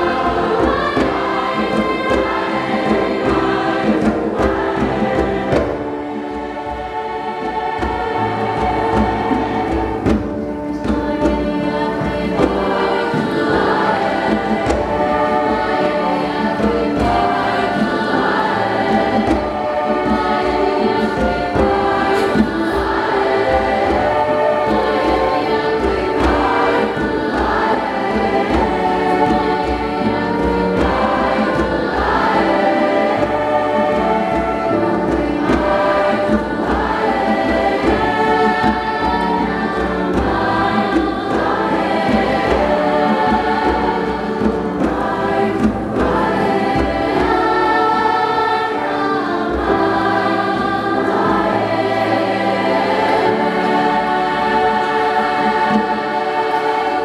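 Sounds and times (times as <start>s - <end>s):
choir singing in harmony: 0.0s - 57.0s.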